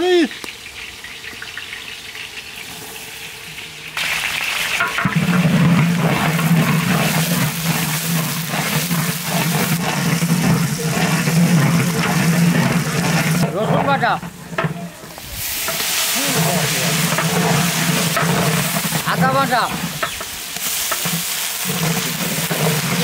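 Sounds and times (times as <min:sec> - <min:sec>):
liquid bubbling and sizzling in pot: 0:00.1 - 0:23.0
ladle scraping pot: 0:04.8 - 0:23.0.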